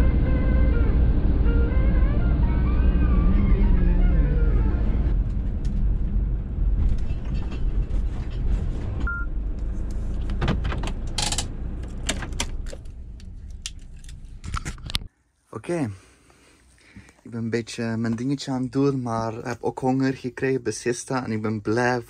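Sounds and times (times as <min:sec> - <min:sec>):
motorhome driving on road: 0:00.0 - 0:15.1
short beep: 0:09.1 - 0:09.3.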